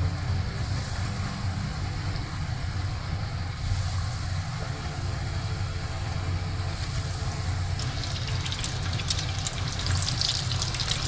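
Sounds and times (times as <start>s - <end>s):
food sizzling in hot oil: 6.5s - 11.0s.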